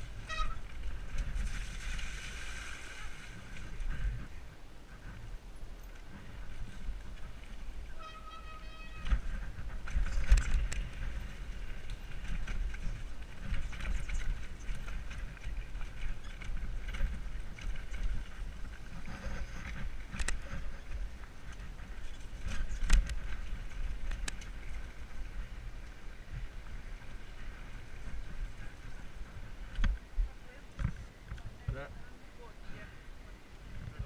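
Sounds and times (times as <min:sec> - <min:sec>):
bike tyres rumbling on dirt: 0:00.0 - 0:05.3, 0:08.7 - 0:30.1
bike rattling: 0:00.0 - 0:30.1
wind buffeting camera: 0:00.0 - 0:32.0, 0:33.5 - 0:34.0.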